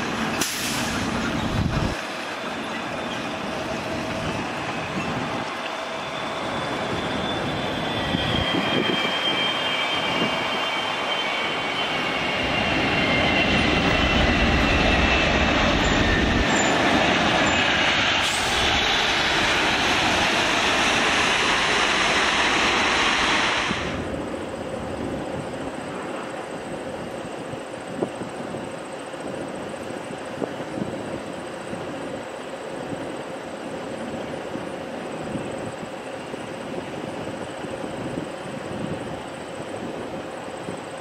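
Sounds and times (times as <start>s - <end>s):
distant jet on approach: 0.0s - 25.0s
jet engines on landing rollout: 0.0s - 41.0s.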